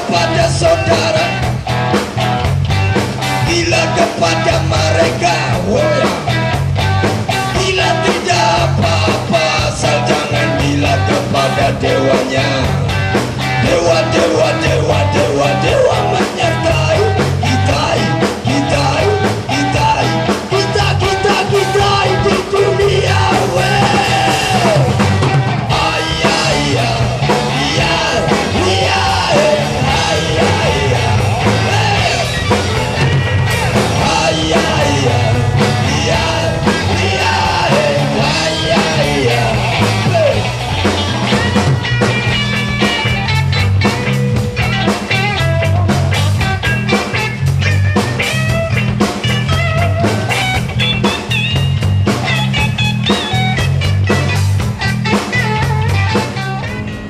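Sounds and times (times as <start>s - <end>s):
person singing: 0.0s - 1.5s, 3.4s - 6.4s, 7.4s - 12.9s, 13.6s - 25.0s, 25.7s - 40.5s
bass line: 0.0s - 57.0s
drums: 0.0s - 57.0s
loud rock music: 0.0s - 57.0s.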